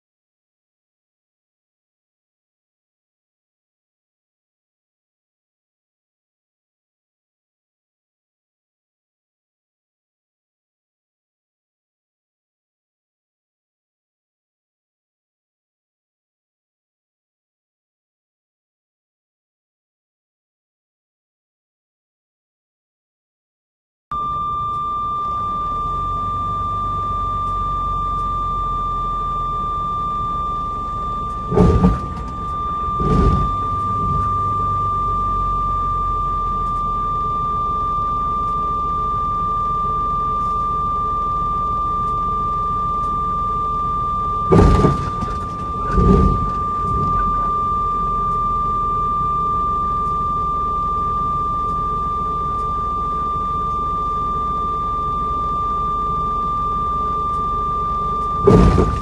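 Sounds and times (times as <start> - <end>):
low rumble in vehicle cab: 24.1 - 59.0
steady high-pitched tone: 24.1 - 59.0
short thuds: 31.4 - 34.5, 44.5 - 47.6, 58.5 - 59.0.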